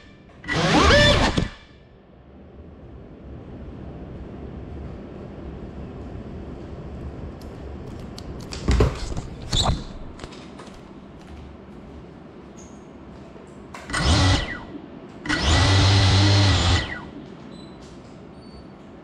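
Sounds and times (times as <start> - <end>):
drone motors spinning up: 0.4 - 1.7, 13.9 - 14.7, 15.3 - 17.1.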